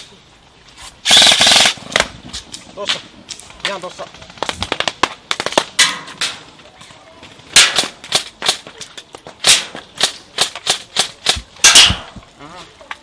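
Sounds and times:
airsoft guns firing: 0:01.1 - 0:02.1, 0:07.6 - 0:08.6.

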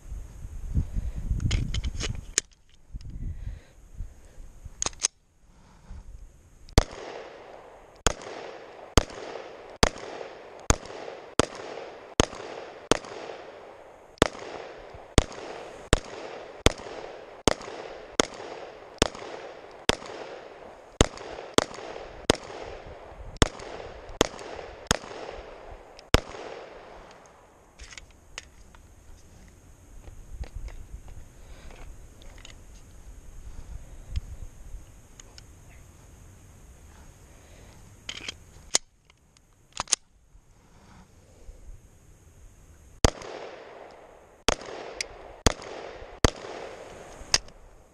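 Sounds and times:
pistol slide locking back: 0:04.8 - 0:05.2
pistol single shots: 0:06.8 - 0:27.5, 0:43.0 - 0:47.6.

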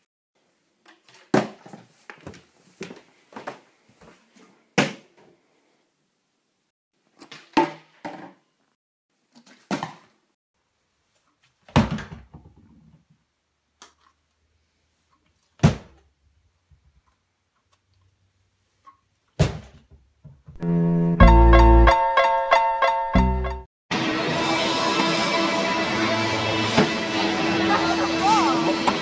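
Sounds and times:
plastic bottles thudding down: 0:01.2 - 0:02.4, 0:11.7 - 0:12.7, 0:19.4 - 0:20.4
music: 0:20.6 - 0:29.0.

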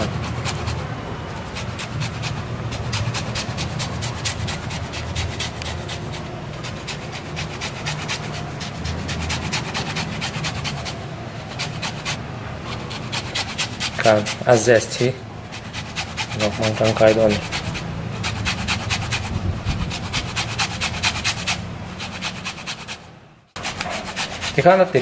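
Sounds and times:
rind rasping on hand grater: 0:00.0 - 0:25.0.

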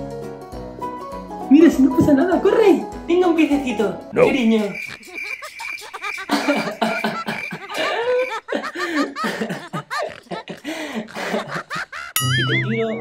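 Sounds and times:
breathy laughter: 0:04.8 - 0:12.2
high pulsing beep: 0:12.2 - 0:13.0.

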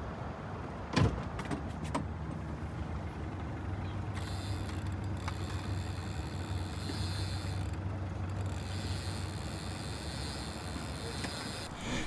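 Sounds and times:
outboard motor running: 0:03.0 - 0:12.0.

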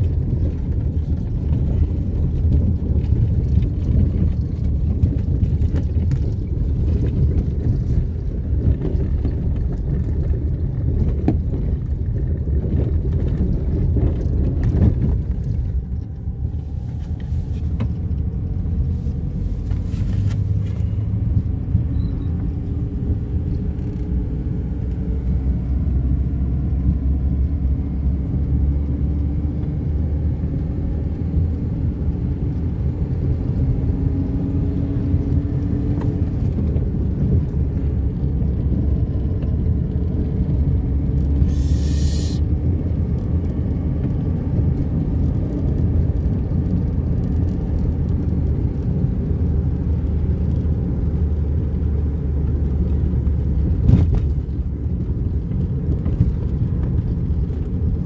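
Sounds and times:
car engine and tyre rumble: 0:00.0 - 0:58.0
short hiss: 0:41.5 - 0:42.4.

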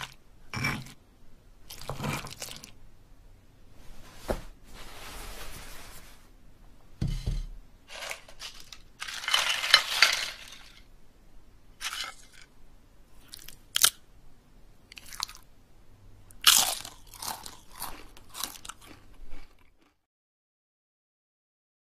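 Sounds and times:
rustling crunches: 0:07.9 - 0:10.9, 0:11.8 - 0:12.5.

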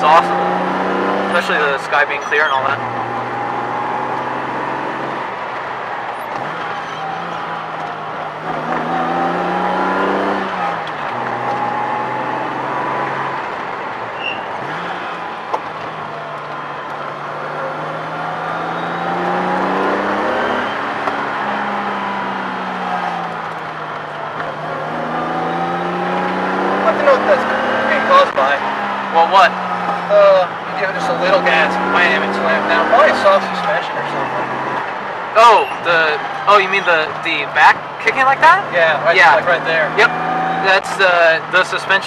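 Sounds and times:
car engine under load: 0:00.0 - 0:42.0
road noise: 0:00.0 - 0:42.0.

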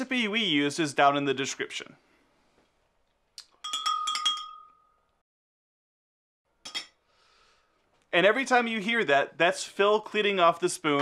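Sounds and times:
metal spoon clinking in container: 0:03.5 - 0:05.1, 0:06.7 - 0:07.0.

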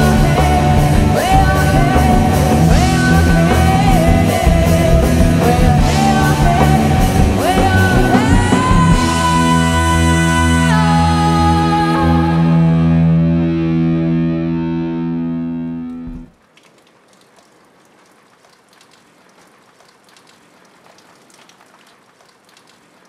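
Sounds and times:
cello chord: 0:11.4 - 0:16.3.

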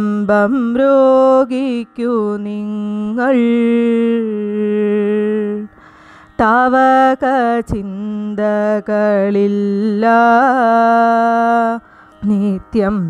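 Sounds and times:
soft breath: 0:05.7 - 0:06.4, 0:11.8 - 0:12.2.

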